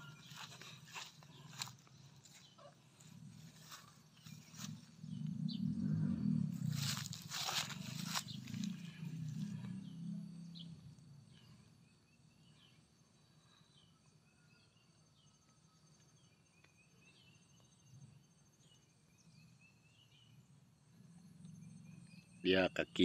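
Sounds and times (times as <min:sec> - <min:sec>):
small birds chirping: 0:00.0 - 0:14.9, 0:16.0 - 0:23.0
faint insect trill: 0:00.0 - 0:23.0
low rumble: 0:03.0 - 0:11.5.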